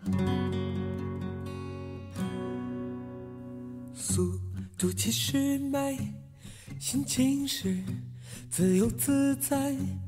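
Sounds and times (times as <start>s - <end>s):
strummed acoustic guitar chord: 0.0s - 8.0s.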